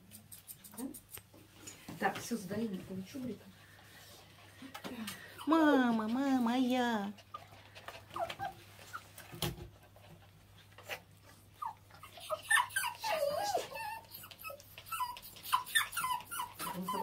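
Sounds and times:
dog whimpering: 5.2 - 9.1, 10.8 - 17.0.

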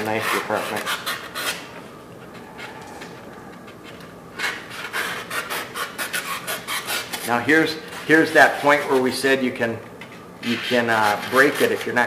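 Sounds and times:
hand tool scraping foam: 10.4 - 12.0.

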